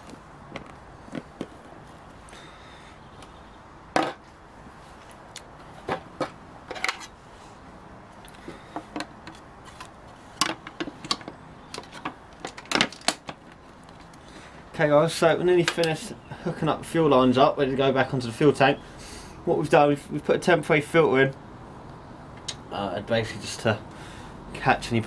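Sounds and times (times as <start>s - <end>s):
plastic parts clicking and knocking: 8.7s - 14.2s.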